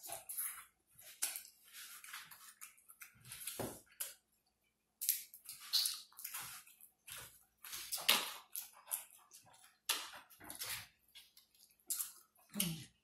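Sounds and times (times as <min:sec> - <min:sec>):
wet chewing and lip smacking: 0:05.0 - 0:13.0.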